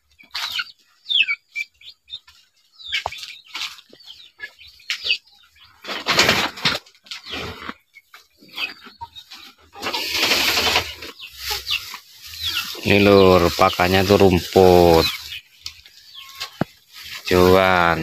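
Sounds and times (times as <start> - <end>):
birds chirping: 0.0 - 18.0
rustling of grass and straw: 5.6 - 18.0.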